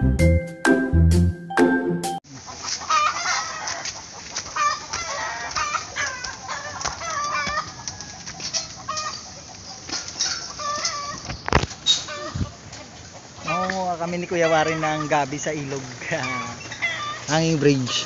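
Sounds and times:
musical jingle: 0.0s - 2.2s
chickens clucking: 2.3s - 18.0s.

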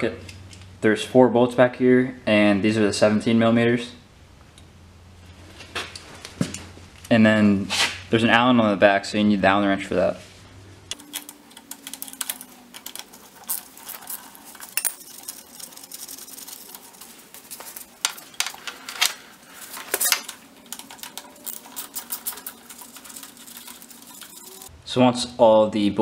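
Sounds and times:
metal tools clinking on bolts: 10.9s - 24.7s.

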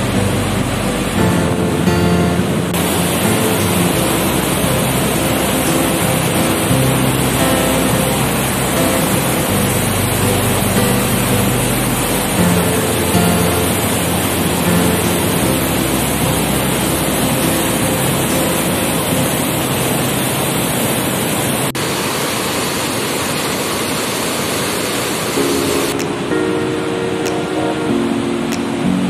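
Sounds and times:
faint background music: 0.0s - 20.5s
waterfall rushing: 0.0s - 29.0s.

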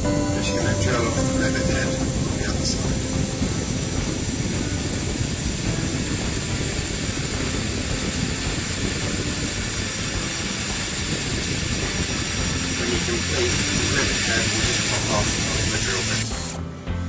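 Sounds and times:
cordless drill drilling metal: 3.4s - 16.6s.

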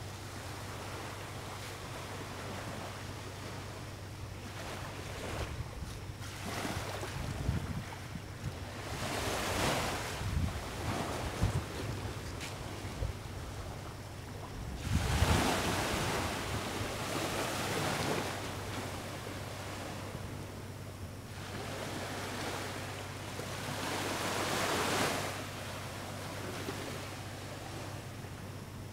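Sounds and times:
gentle sea waves washing: 0.0s - 20.6s, 21.3s - 28.4s
wind on microphone: 4.9s - 18.8s.

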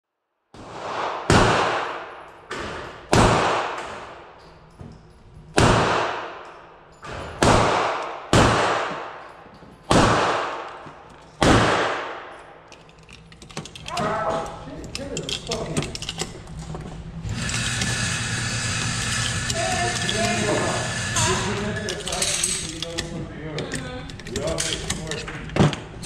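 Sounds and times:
gunshots echoing indoors: 0.5s - 4.6s, 5.5s - 12.7s.

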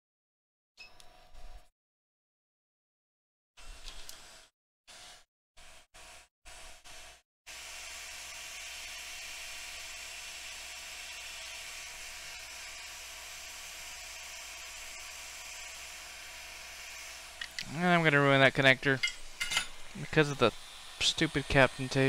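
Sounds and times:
hot air station hissing: 7.9s - 22.0s.

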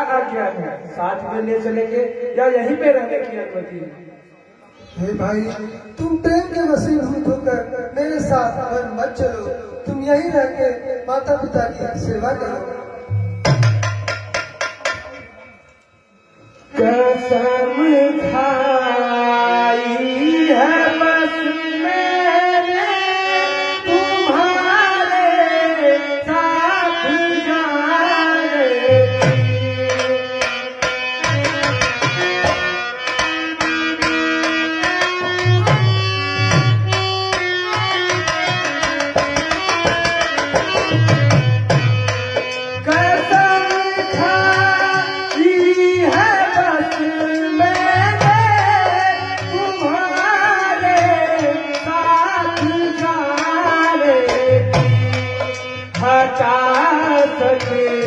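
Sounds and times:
hand drums booming: 13.1s - 15.2s
person singing: 16.4s - 30.6s, 42.8s - 58.0s.

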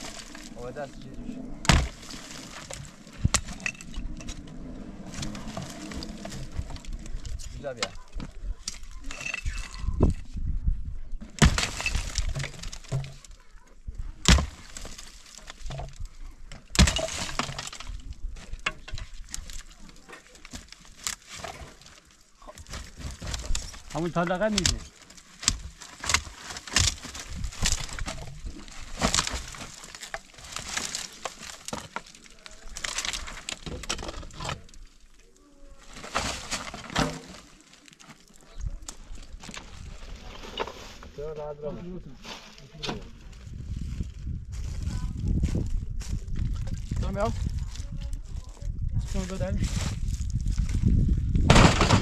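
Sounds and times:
dry branches crackling and snapping: 0.0s - 10.4s, 11.1s - 41.2s, 42.1s - 52.0s
loose rock clattering: 0.0s - 10.5s, 11.1s - 44.4s, 45.0s - 52.0s
pickaxe striking stony ground: 1.6s - 3.8s, 11.3s - 13.3s, 14.2s - 15.0s, 16.7s - 17.9s, 22.6s - 32.1s, 36.0s - 37.4s, 51.4s - 52.0s.

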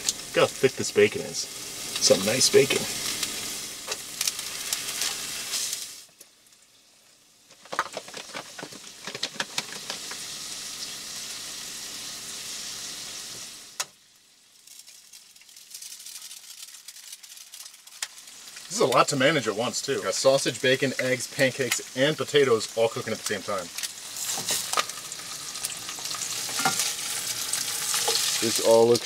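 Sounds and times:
meat sizzling in a frying pan: 0.0s - 29.0s
utensils tapping on pans: 26.5s - 26.9s.

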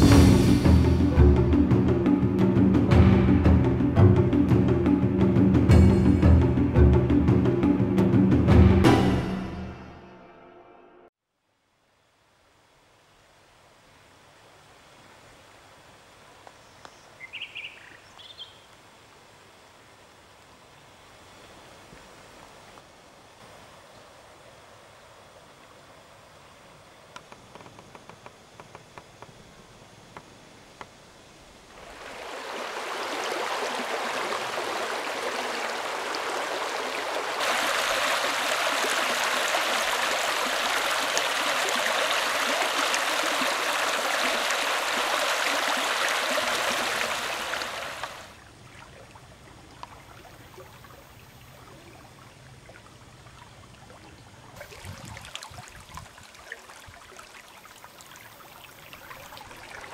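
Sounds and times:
stream rushing over stones: 31.8s - 48.4s, 54.6s - 59.9s.

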